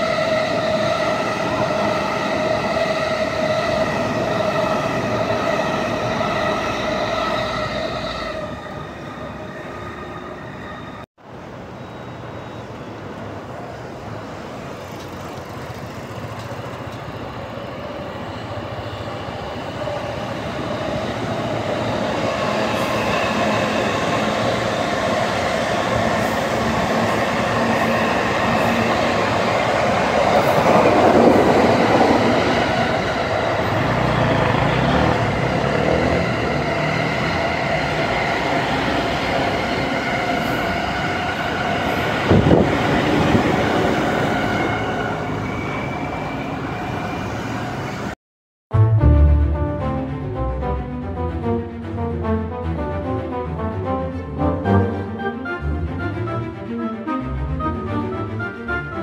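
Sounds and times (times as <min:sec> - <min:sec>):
train wheels rushing on rails: 0:12.0 - 0:48.2.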